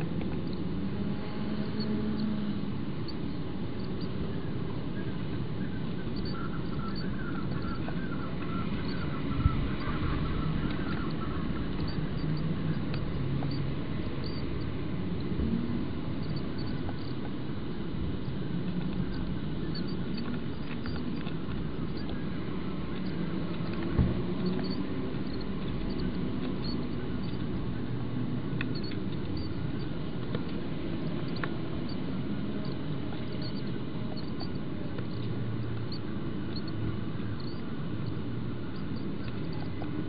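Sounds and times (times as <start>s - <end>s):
low background rumble: 0.0s - 40.0s
chicks peeping: 5.8s - 13.6s, 16.2s - 17.1s, 35.9s - 36.8s, 37.4s - 40.0s.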